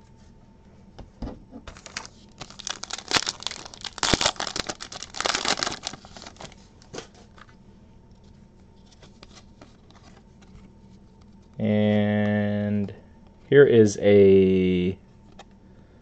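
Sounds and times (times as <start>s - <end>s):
foil wrapper crinkling and tearing: 1.7s - 6.6s
cards rustling: 1.7s - 7.5s.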